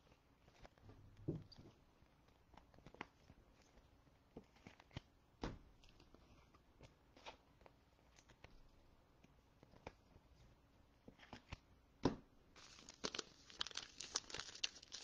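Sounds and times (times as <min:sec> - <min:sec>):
trading cards rustling: 0:12.6 - 0:15.0.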